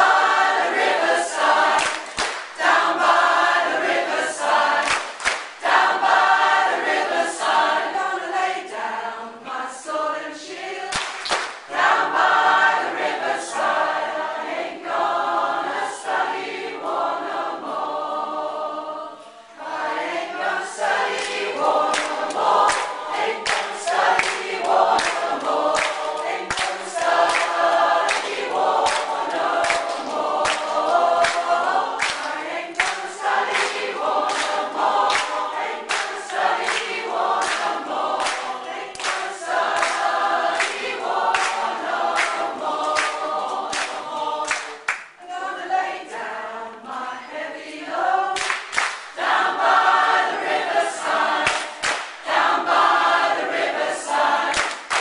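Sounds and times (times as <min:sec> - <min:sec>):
people clapping in time: 0:00.0 - 0:07.6, 0:10.8 - 0:13.2, 0:20.8 - 0:45.2, 0:48.4 - 0:55.0
choir singing: 0:00.0 - 0:55.0.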